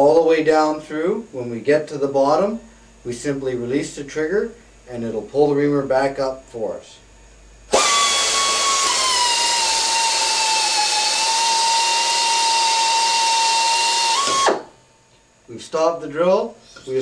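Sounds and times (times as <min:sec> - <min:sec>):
pneumatic drill whining: 0:07.7 - 0:14.8.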